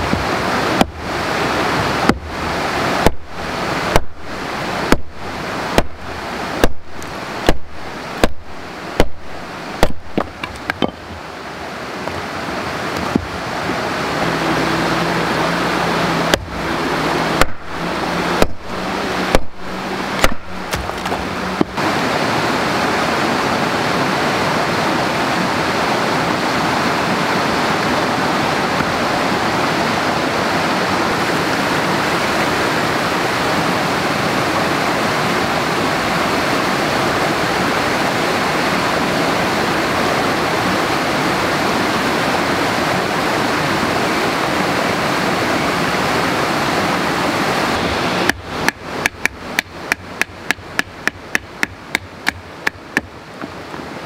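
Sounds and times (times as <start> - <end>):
wood being struck: 0.0 - 1.1, 2.0 - 2.4, 3.0 - 4.2, 4.8 - 11.2, 13.0 - 13.4, 16.2 - 21.8, 48.3 - 53.6
flowing water rushing: 0.0 - 54.0.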